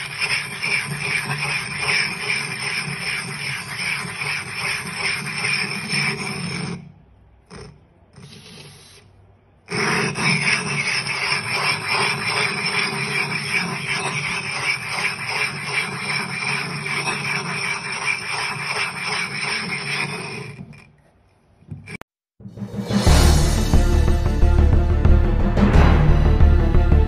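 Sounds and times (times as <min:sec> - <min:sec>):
glass grinding with gritty scraping: 0:00.0 - 0:06.8, 0:09.7 - 0:21.0.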